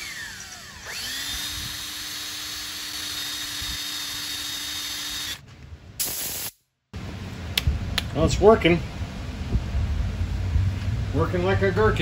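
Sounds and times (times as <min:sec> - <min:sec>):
electric drill whining: 0:00.0 - 0:05.4.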